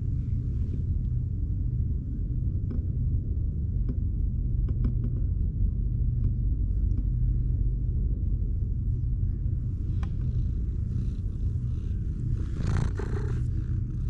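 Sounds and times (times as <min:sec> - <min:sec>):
cat purring: 0:09.6 - 0:14.0
faint ticks: 0:09.8 - 0:13.9.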